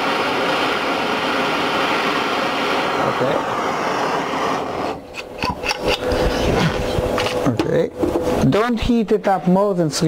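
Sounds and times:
gas torch roaring hiss: 0:00.0 - 0:07.5.

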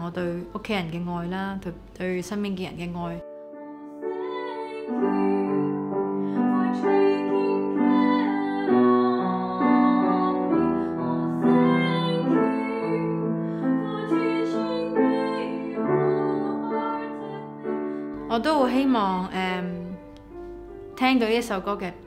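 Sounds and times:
grand piano: 0:00.0 - 0:22.0
woman singing slow song: 0:03.0 - 0:20.1.

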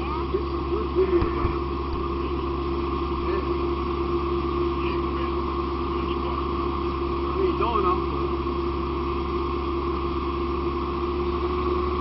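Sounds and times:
diesel engine and pump running: 0:00.0 - 0:12.0
steady hum: 0:00.0 - 0:12.0.

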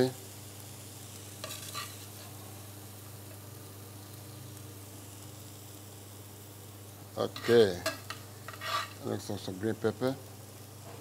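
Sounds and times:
low kitchen hiss: 0:00.0 - 0:11.0
utensil scraping in a pan: 0:01.3 - 0:03.4, 0:07.2 - 0:09.2.

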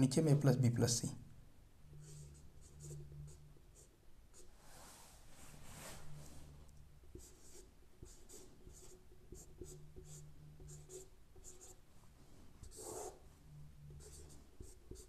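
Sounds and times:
steady low hum: 0:00.0 - 0:15.0
marker pen scratching on board: 0:01.9 - 0:04.5, 0:07.1 - 0:11.8, 0:12.6 - 0:13.3, 0:13.9 - 0:15.0.

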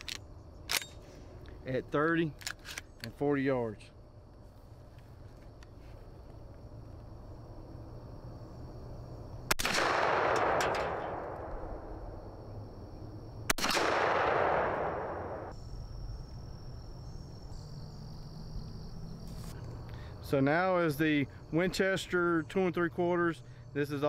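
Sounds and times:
shotgun shots: 0:09.5 - 0:12.0, 0:13.5 - 0:15.5.

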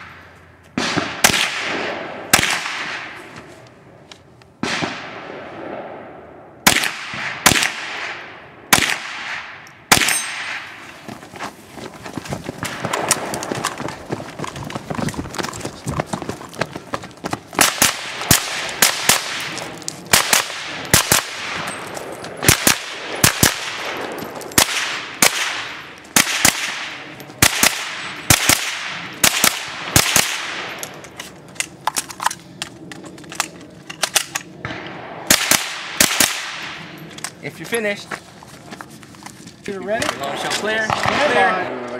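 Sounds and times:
rifle shots: 0:00.8 - 0:03.2, 0:04.6 - 0:10.8, 0:12.6 - 0:14.1, 0:17.5 - 0:30.8, 0:34.0 - 0:36.9, 0:40.8 - 0:41.5.

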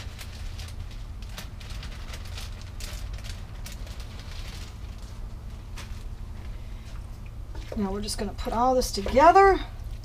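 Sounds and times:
plastic bag rustling and clicking: 0:00.0 - 0:07.8
steady low hum: 0:00.0 - 0:10.0.

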